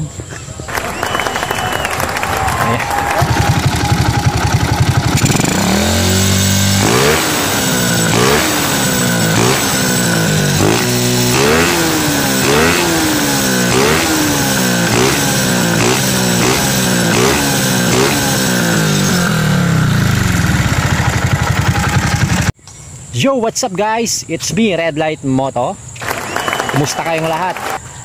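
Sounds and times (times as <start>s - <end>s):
small motorcycle engine revving: 0.7s - 22.6s.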